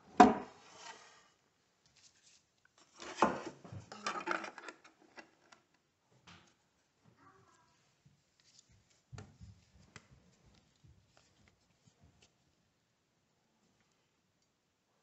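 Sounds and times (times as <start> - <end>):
wooden board knocking down: 0.2 - 0.5
board scraping over saw table: 0.2 - 1.2.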